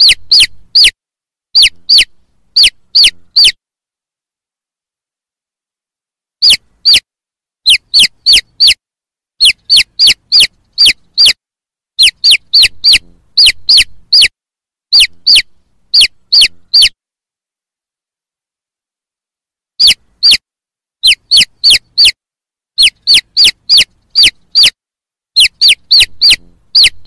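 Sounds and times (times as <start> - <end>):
chick peeping: 0.0 - 1.0, 1.6 - 3.6, 6.4 - 7.0, 7.7 - 8.8, 9.4 - 11.4, 12.0 - 14.3, 14.9 - 17.0, 19.8 - 20.4, 21.0 - 22.2, 22.8 - 24.8, 25.4 - 27.0.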